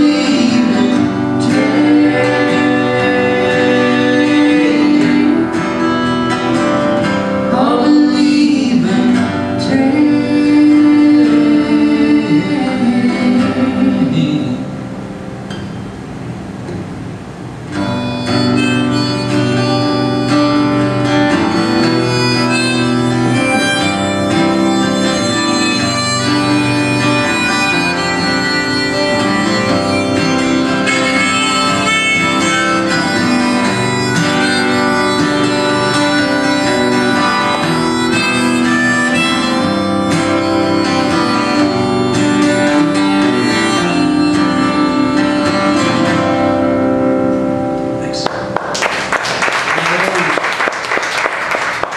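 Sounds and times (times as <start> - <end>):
harmonica playing: 0.0 - 8.2, 17.8 - 47.3
acoustic guitar: 0.0 - 51.9.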